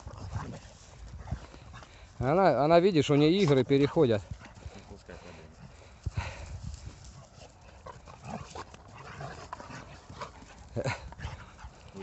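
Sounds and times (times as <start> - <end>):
scuffling in dry grass: 0.0 - 12.0
dogs vocalizing: 3.2 - 12.0.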